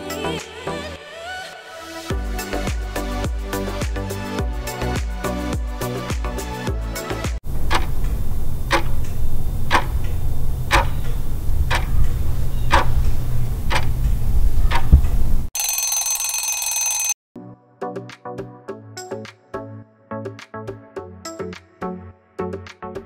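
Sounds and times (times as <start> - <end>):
timer ticking: 11.7 - 11.9
ringing alarm bell: 15.6 - 17.2.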